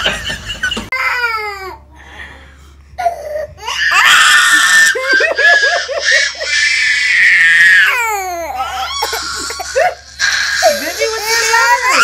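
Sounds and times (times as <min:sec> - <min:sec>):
young children crying: 0:03.0 - 0:12.0.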